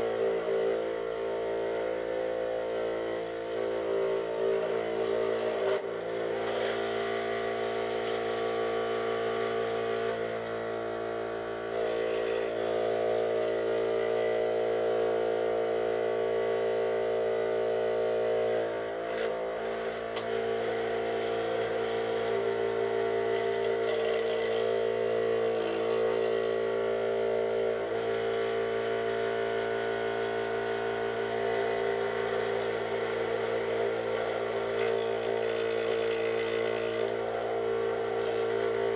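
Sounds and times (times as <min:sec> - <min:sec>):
scroll saw cutting plywood: 0:33.2 - 0:37.4.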